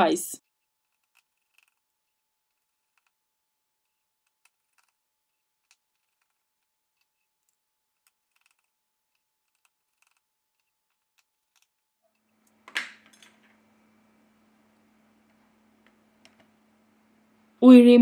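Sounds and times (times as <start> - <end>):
phone parts scraping clatter: 3.9 - 13.6.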